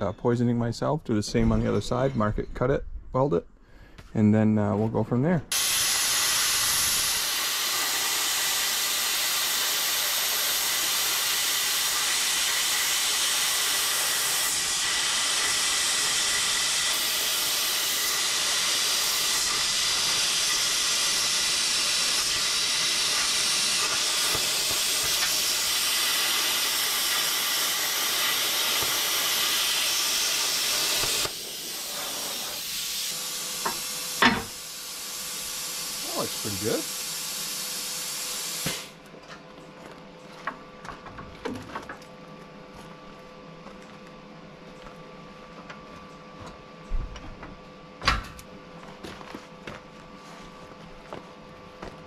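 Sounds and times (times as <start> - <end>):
plasma cutter hissing: 5.5 - 39.0.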